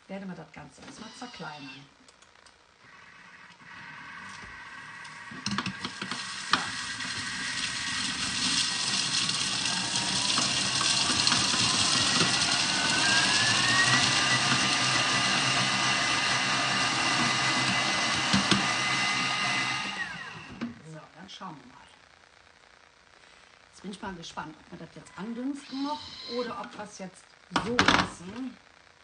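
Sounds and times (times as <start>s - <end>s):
kitchen appliance motor whine: 2.8s - 20.8s, 25.0s - 26.9s.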